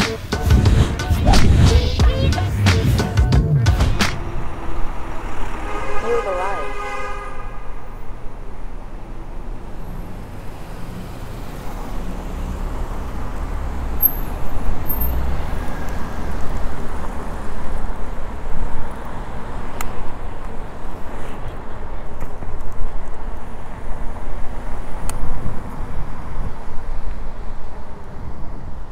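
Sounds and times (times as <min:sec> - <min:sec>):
city traffic noise: 0:00.0 - 0:28.9
low rumble: 0:00.4 - 0:06.0.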